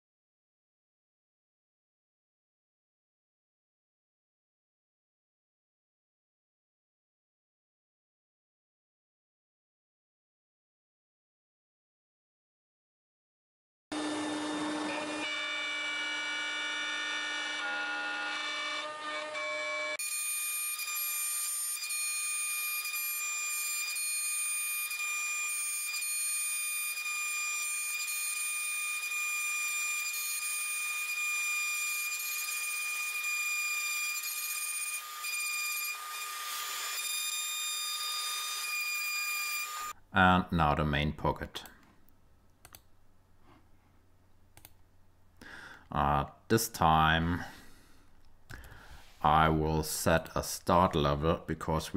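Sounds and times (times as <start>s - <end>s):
router spindle whine: 13.9s - 39.9s.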